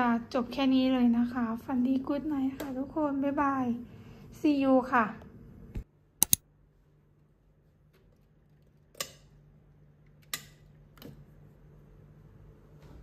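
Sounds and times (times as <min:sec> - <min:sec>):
switch clicks: 0:05.8 - 0:06.4.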